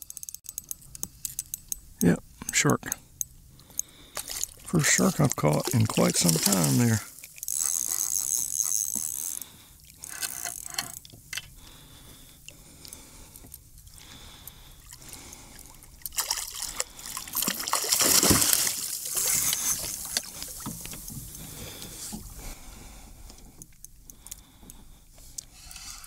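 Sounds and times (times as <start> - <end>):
water splashing and trickling: 4.1 - 8.5, 13.9 - 22.2.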